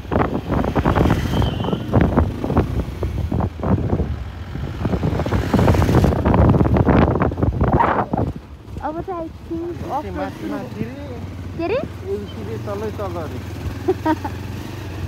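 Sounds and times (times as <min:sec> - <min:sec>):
wind buffeting microphone: 0:00.0 - 0:12.0
motorbike ride rumble: 0:00.0 - 0:15.0.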